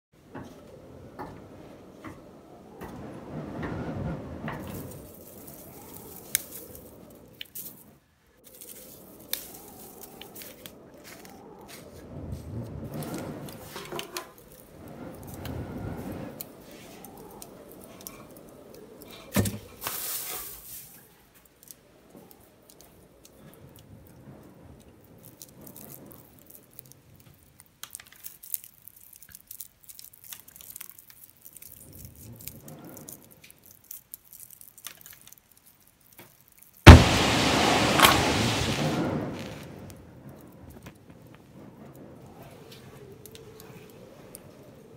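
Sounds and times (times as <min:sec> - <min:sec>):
wind gusting: 0:00.2 - 0:19.8, 0:36.9 - 0:44.9
dry crackling of wheat ear: 0:04.4 - 0:44.9
match struck and flaring: 0:04.5 - 0:07.9, 0:08.5 - 0:18.7, 0:36.9 - 0:41.1.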